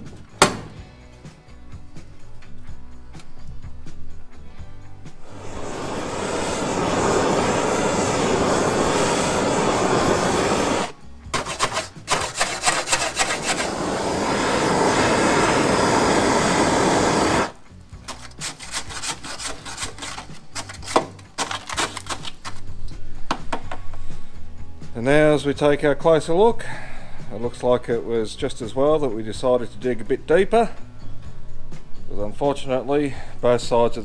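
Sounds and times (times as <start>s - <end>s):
gas torch flame hissing: 5.1s - 18.6s
scraping and tapping on metal: 11.4s - 13.6s.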